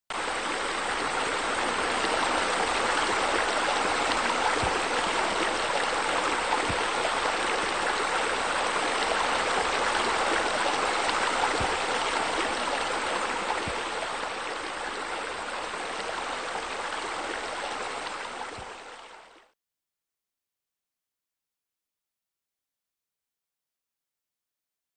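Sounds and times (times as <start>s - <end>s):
running water rushing: 0.1s - 19.4s.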